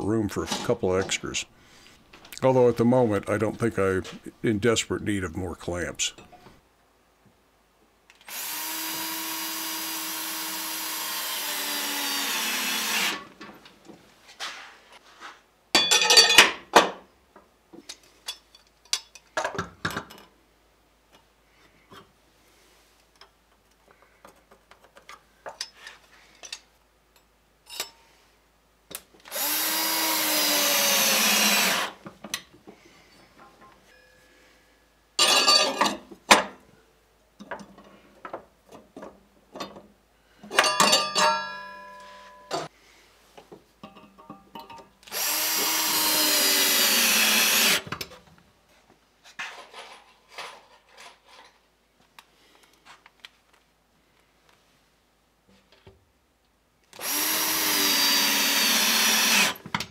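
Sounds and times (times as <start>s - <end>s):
cordless drill driving screws: 8.3s - 13.2s, 29.3s - 32.0s, 45.1s - 47.9s, 56.9s - 59.6s.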